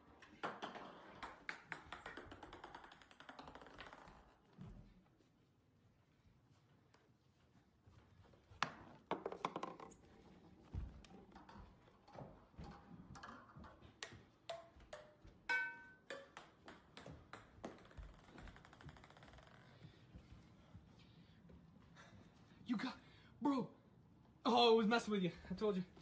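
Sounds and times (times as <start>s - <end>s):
ping-pong ball bouncing: 0.4s - 4.4s, 8.6s - 10.0s, 13.2s - 19.8s.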